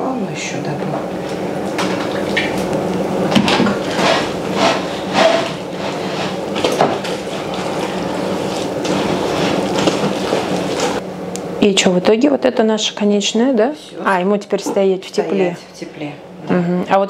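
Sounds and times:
mixer motor humming: 0:00.8 - 0:11.6.

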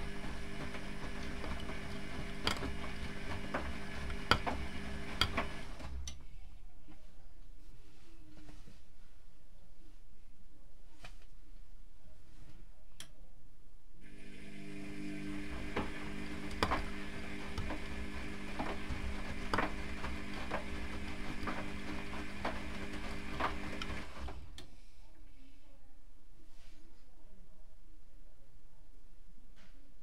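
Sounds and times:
washing machine motor hum: 0:00.0 - 0:06.2, 0:14.0 - 0:24.6
click: 0:13.0 - 0:13.2.

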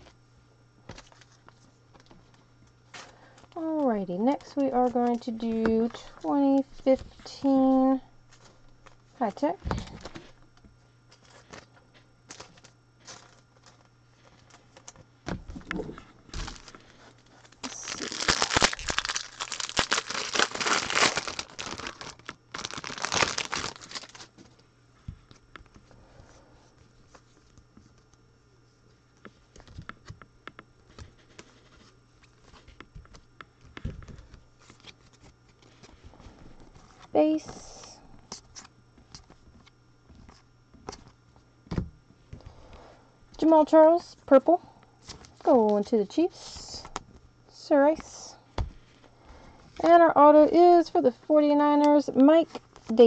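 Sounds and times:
foil wrapper tearing and crinkling: 0:16.3 - 0:24.4.

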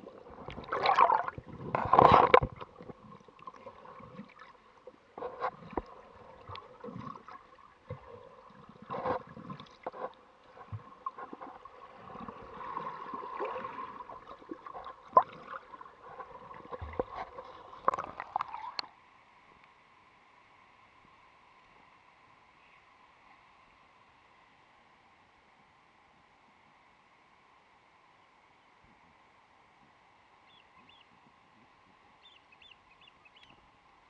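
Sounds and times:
underwater gurgling and bubbling: 0:00.0 - 0:18.8
faint steady hiss: 0:00.0 - 0:34.0.

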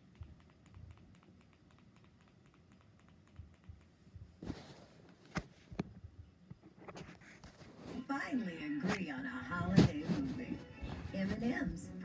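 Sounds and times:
sharp clicks: 0:00.0 - 0:04.0
faint background noise: 0:00.0 - 0:12.0.

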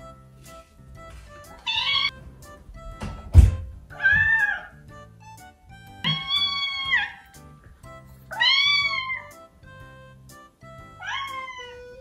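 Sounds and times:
kitten meowing: 0:01.6 - 0:02.1, 0:03.9 - 0:04.7, 0:06.1 - 0:07.2, 0:08.3 - 0:09.3, 0:11.0 - 0:12.0.

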